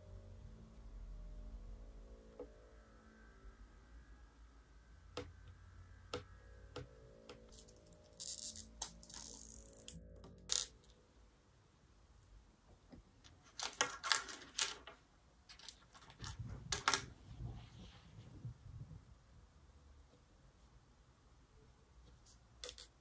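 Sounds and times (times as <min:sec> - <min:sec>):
plastic items clicking on table: 0:13.2 - 0:17.1, 0:22.6 - 0:23.0.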